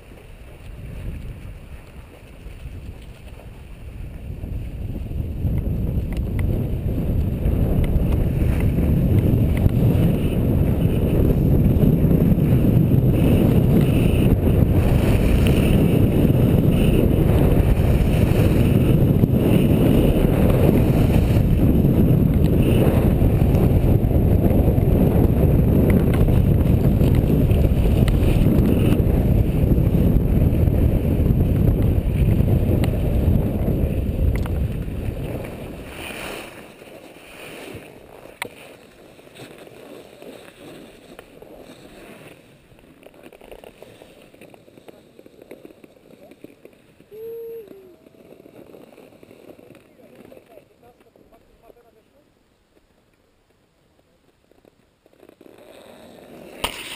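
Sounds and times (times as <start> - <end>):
wind buffeting microphone: 0.0 - 36.4
skis sliding over packed snow: 0.0 - 56.9.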